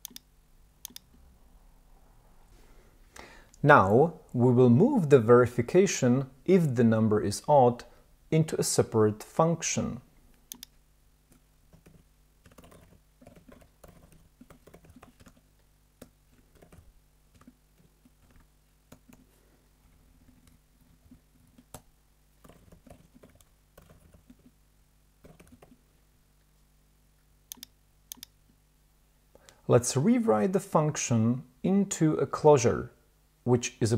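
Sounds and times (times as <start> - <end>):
typing on computer keyboard: 11.7 - 15.4, 16.0 - 19.2, 22.4 - 24.5, 25.2 - 25.8.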